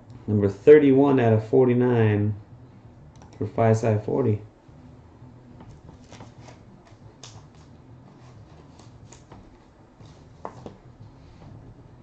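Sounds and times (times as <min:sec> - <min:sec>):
card rustling and clicking: 0:05.6 - 0:10.8.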